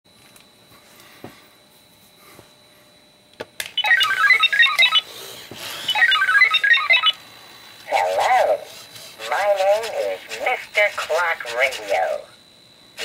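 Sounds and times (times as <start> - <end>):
rapid electronic beeps: 3.8 - 5.0, 5.9 - 7.2.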